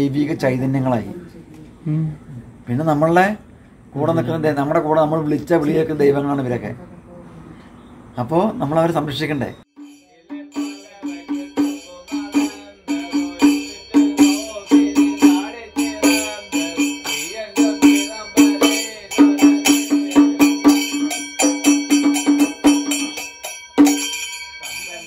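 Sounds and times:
ringing metal percussion: 9.7 - 25.0
drum beaten quickly: 10.3 - 24.1.

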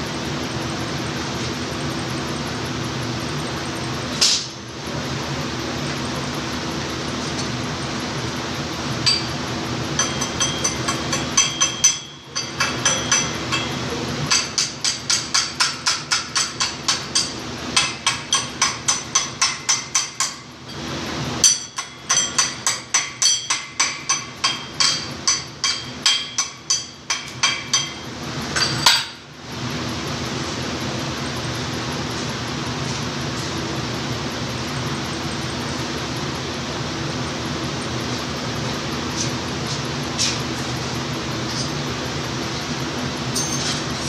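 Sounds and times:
low workshop hum: 0.0 - 44.0
hammer striking steel: 9.0 - 9.4, 10.0 - 20.4, 21.4 - 29.2, 43.4 - 43.8.

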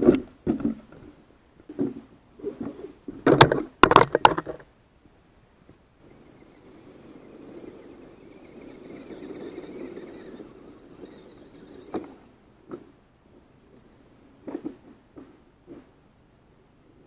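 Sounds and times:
toy truck knocking tumbling: 3.3 - 4.7
electric motor whining: 6.0 - 12.4.

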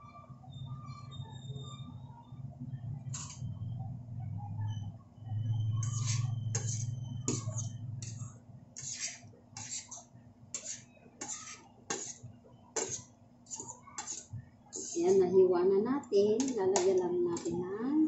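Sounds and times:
utensils scraping frying pan: 3.1 - 3.5, 5.8 - 12.2, 12.8 - 15.3, 16.4 - 17.6.

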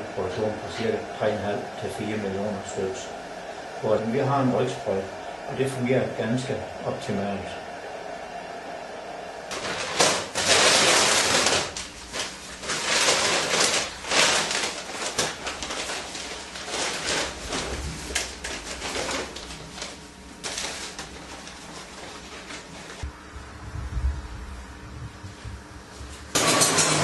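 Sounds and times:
sack rustling: 9.5 - 23.1.

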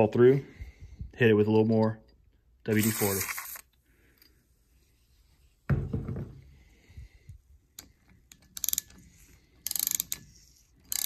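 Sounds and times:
thump: 5.7 - 6.4
ratchet wrench clicking: 8.3 - 11.0.

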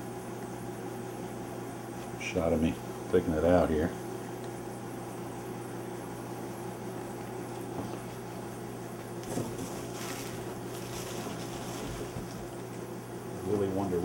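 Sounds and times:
steady low hum: 0.0 - 14.0
plastic wrap rustling: 9.2 - 12.6.

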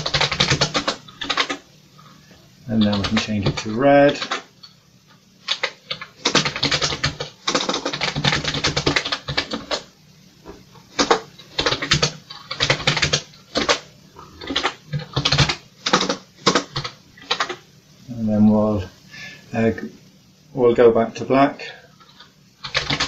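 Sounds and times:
keyboard typing: 0.0 - 1.6, 2.8 - 4.8, 5.4 - 9.9, 10.9 - 13.8, 14.4 - 17.6, 22.0 - 23.0.

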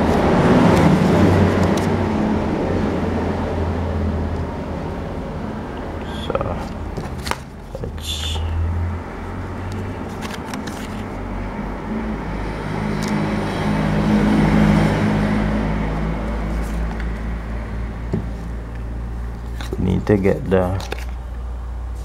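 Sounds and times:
low engine hum and rumble: 0.0 - 22.0
plastic tools clicking and scraping: 20.7 - 21.2.

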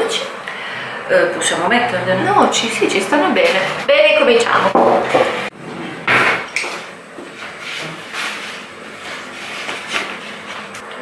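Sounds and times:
kitchen things knocking and rustling: 4.6 - 5.5.

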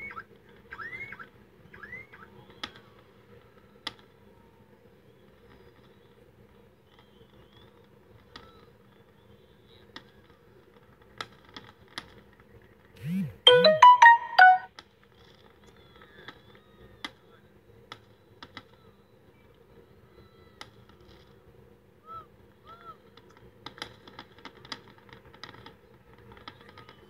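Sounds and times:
electronic ringtone jingle: 13.0 - 14.7.

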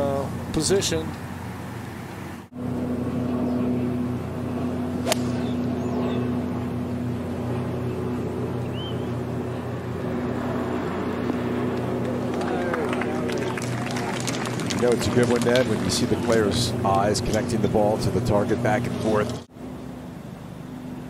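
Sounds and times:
low mechanical hum: 0.0 - 21.0
golf club striking ball: 5.0 - 5.6
bird chirping: 7.8 - 9.2.

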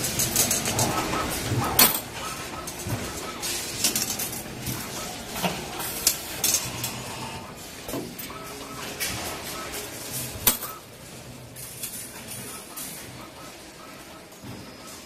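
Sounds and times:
steel wire pieces clinking: 0.0 - 4.7.

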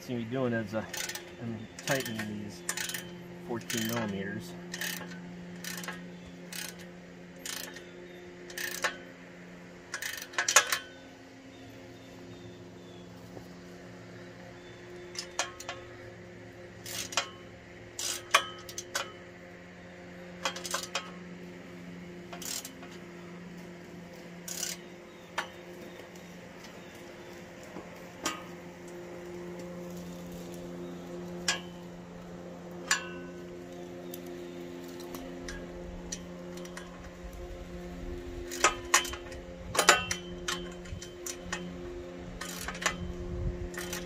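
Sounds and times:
steady low hum: 0.0 - 44.0
metallic clinks and clanks: 0.6 - 9.2, 9.9 - 11.0, 15.0 - 16.0, 16.8 - 19.2, 20.3 - 21.2, 22.3 - 23.0, 24.4 - 25.9, 28.2 - 28.6, 31.4 - 31.9, 32.8 - 34.2, 35.0 - 37.2, 38.4 - 41.8, 42.4 - 44.0.

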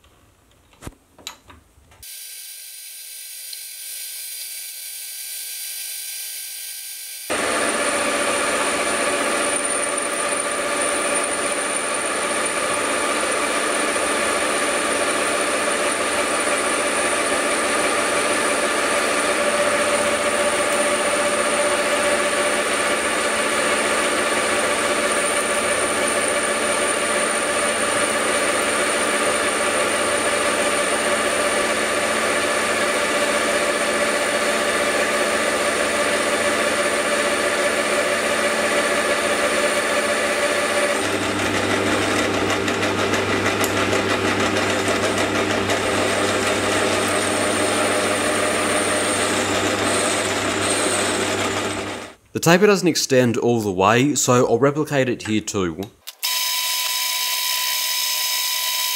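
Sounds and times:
tool cutting hiss: 2.0 - 7.4, 56.0 - 58.9
metal lathe whine: 2.1 - 52.1, 56.2 - 58.9.

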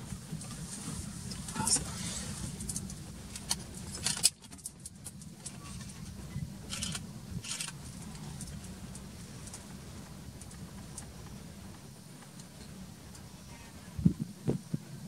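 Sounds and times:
rattles and clicks: 0.0 - 13.3
vehicle engine idling: 0.0 - 15.0.

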